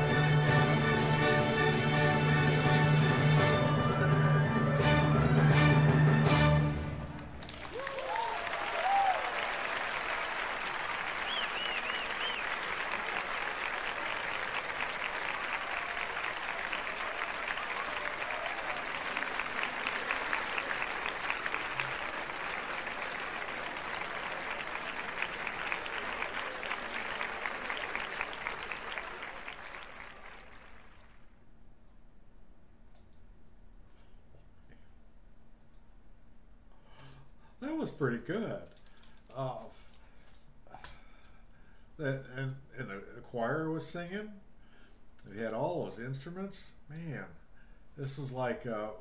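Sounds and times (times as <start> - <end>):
large crowd applauding: 0.0 - 4.0, 7.1 - 31.4.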